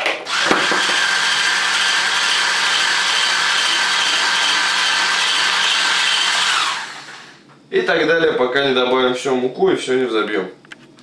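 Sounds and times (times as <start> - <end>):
hand blender motor whine: 0.3 - 7.4.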